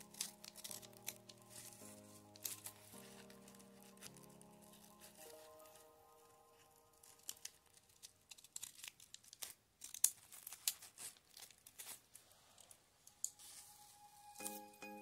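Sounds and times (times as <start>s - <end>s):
scissors snipping paper: 0.0s - 5.9s, 6.5s - 12.1s
paper crinkling: 0.0s - 14.7s.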